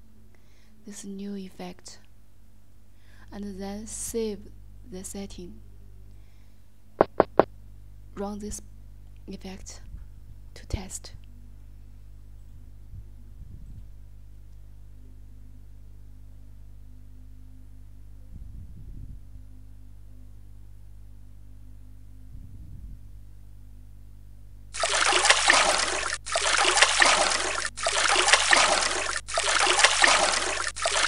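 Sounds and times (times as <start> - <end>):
faint low hum: 0.0 - 31.0
water splashing and trickling: 24.8 - 31.0.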